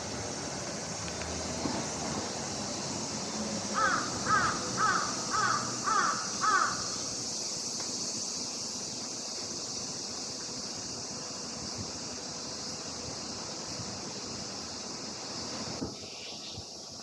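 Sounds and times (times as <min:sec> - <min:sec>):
steady high hiss: 0:00.0 - 0:17.0
crow cawing: 0:03.7 - 0:07.0.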